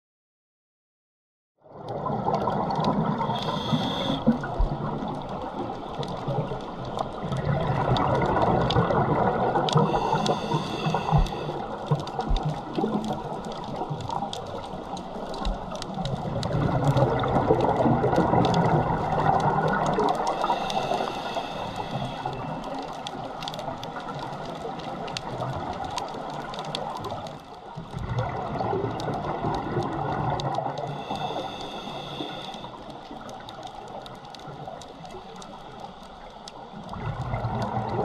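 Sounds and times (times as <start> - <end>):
sharp clicks underwater: 1.8 - 38.0
diver regulator bubbling exhalations: 7.2 - 13.4.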